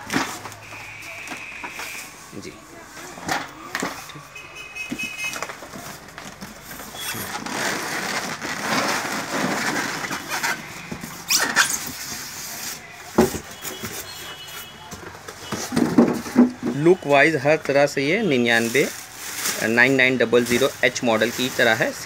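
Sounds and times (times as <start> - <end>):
foam squeaking against cardboard: 6.8 - 15.8.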